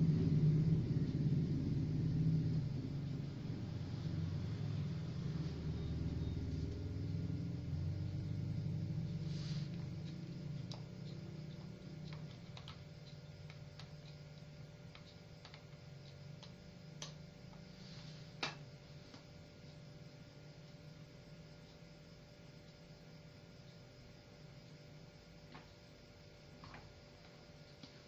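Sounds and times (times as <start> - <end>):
low rumble: 0.0 - 10.8
small clicks and taps: 10.6 - 17.6.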